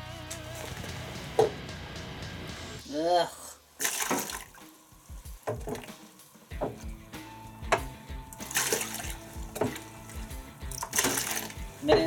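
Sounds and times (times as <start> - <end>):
background music with beat: 0.0 - 3.0, 4.5 - 12.0
water sloshing and splashing: 3.6 - 12.0.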